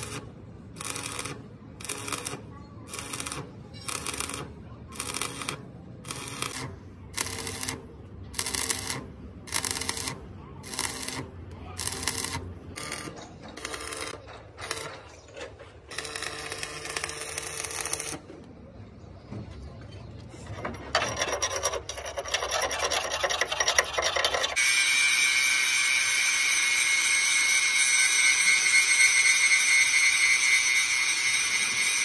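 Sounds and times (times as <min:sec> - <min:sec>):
wire brush rasping on metal: 0:20.6 - 0:24.6.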